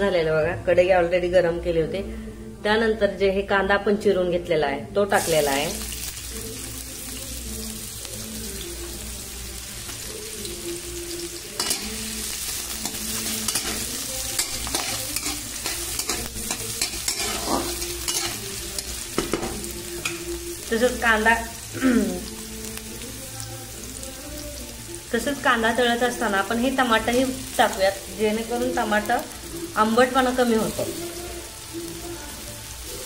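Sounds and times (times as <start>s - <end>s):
onion sizzling in hot oil: 5.0s - 33.0s
spatula scraping a pan: 12.8s - 19.5s.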